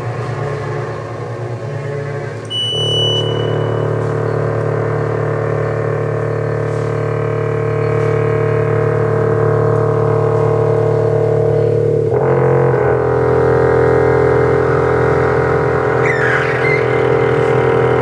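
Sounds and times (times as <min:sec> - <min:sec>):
low electronic drone: 0:00.0 - 0:18.0
high whistling tone: 0:02.4 - 0:04.2, 0:16.0 - 0:17.1.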